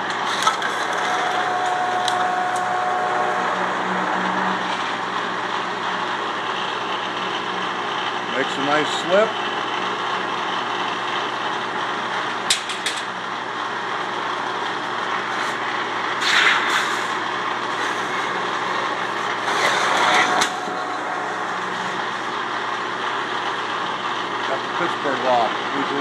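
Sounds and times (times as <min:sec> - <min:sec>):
machine motor humming: 0:00.0 - 0:08.2, 0:17.2 - 0:24.4
sheet metal rasping through rollers: 0:00.1 - 0:05.0, 0:16.2 - 0:22.4.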